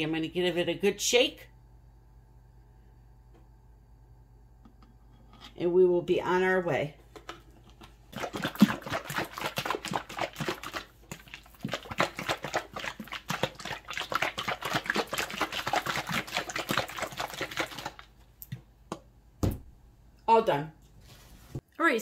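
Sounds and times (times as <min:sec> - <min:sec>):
liquid sloshing in shaken bottle: 0:07.2 - 0:18.1.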